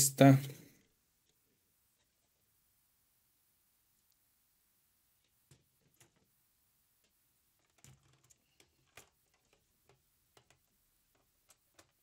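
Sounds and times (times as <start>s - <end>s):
faint clicks and knocks of handled parts: 5.2s - 6.4s, 7.0s - 12.0s.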